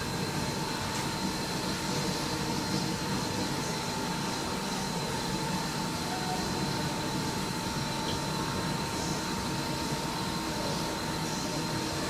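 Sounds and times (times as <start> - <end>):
machine noise with whine: 0.0 - 12.0.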